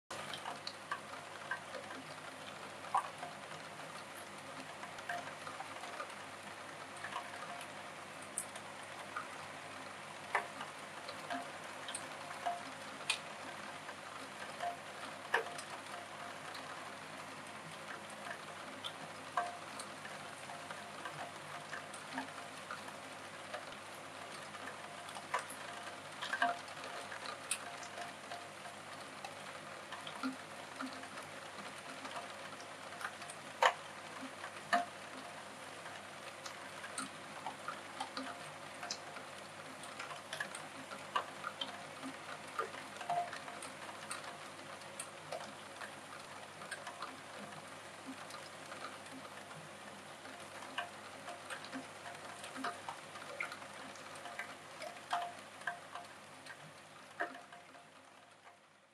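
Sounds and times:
rain hiss on a roof window: 0:00.1 - 0:58.9.

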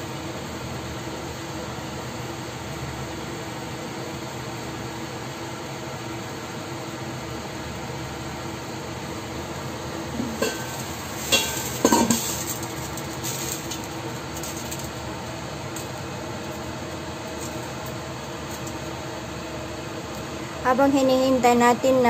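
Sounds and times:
steady hiss: 0:10.2 - 0:14.9
metal pan lid clinking: 0:10.3 - 0:12.4.

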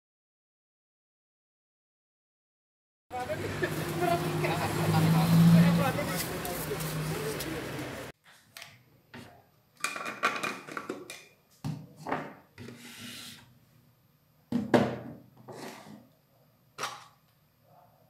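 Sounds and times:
objects rubbing and scraping: 0:03.3 - 0:08.4, 0:12.0 - 0:13.5, 0:15.4 - 0:16.1.

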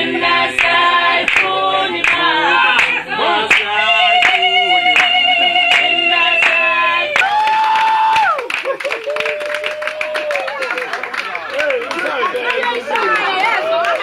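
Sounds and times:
group singing in chorus: 0:00.0 - 0:07.4
hand-clapping: 0:01.3 - 0:04.4, 0:05.0 - 0:06.6, 0:07.2 - 0:14.0.

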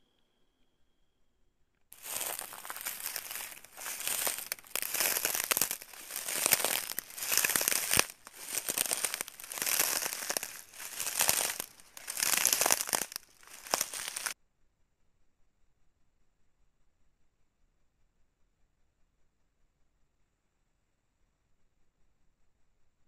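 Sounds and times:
crinkling rustling: 0:02.0 - 0:14.4.

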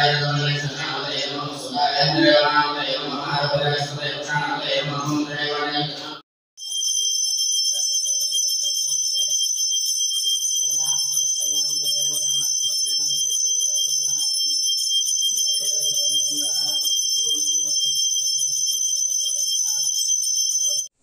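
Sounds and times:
bell ringing continuously: 0:06.6 - 0:21.0.

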